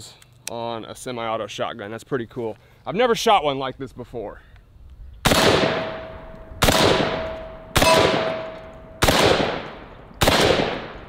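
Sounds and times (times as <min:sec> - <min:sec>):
shotgun shots with echo: 0:05.2 - 0:11.0
thin steady ringing tone: 0:05.8 - 0:06.6, 0:07.2 - 0:09.0.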